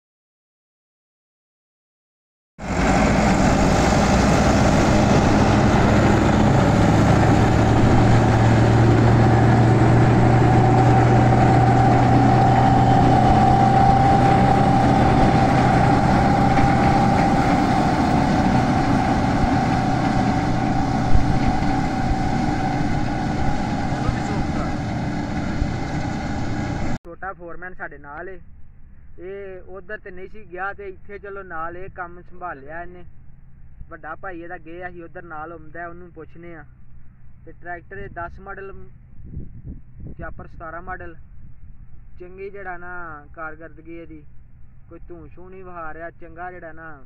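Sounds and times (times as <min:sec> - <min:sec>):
straw chopper whine: 0:02.6 - 0:27.0
tractor engine running: 0:02.6 - 0:27.0.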